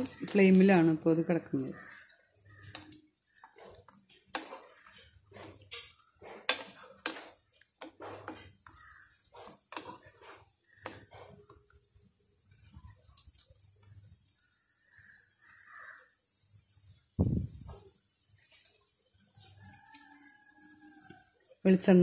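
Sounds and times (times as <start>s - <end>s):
spoon clinking and scraping on pan: 1.7s - 13.0s.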